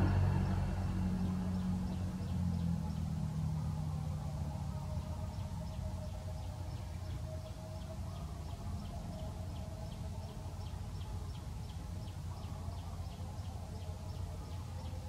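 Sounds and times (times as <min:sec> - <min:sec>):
low rumble: 0:00.0 - 0:03.3.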